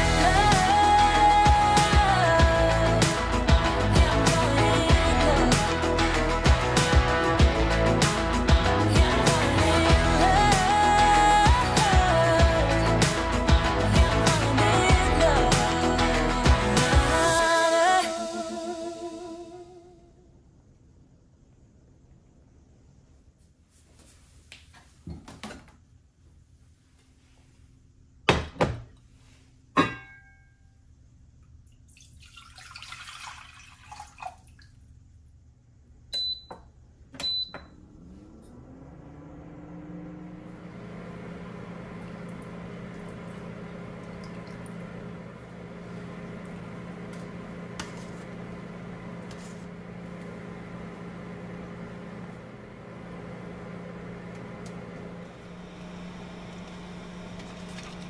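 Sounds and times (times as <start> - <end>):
induction hob humming: 0.0 - 20.2, 35.8 - 58.0
cast-iron pots knocking: 29.8 - 30.3
water pouring: 31.6 - 34.9, 42.0 - 45.0
hob button beeps: 36.2 - 36.6.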